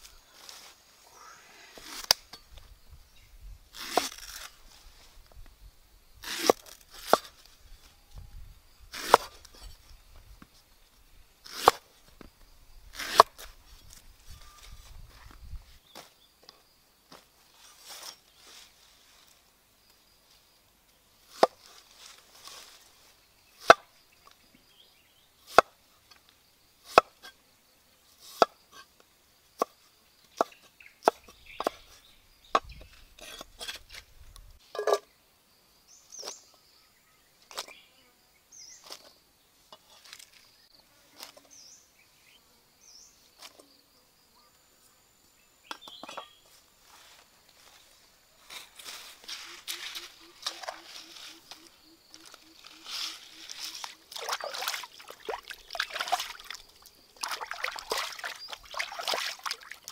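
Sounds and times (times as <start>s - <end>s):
faint high chirping: 13.7s - 16.1s.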